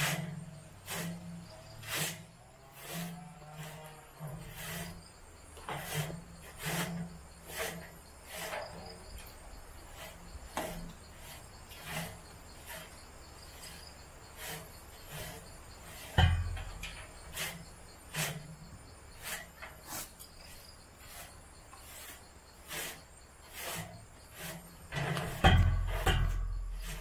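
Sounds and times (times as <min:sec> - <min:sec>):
broom sweeping leaves on metal mesh: 0:00.0 - 0:05.0, 0:05.7 - 0:09.1, 0:13.5 - 0:18.6, 0:19.2 - 0:27.0.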